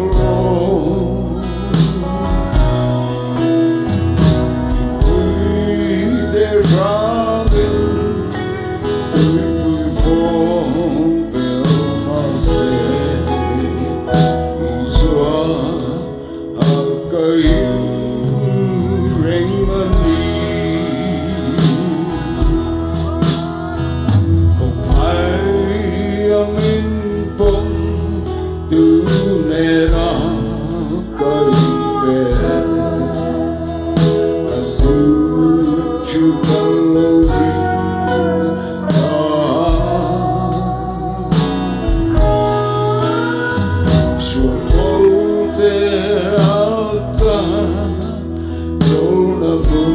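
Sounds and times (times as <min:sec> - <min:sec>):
guitar: 0:00.0 - 0:49.9
man singing into a microphone: 0:00.0 - 0:49.9.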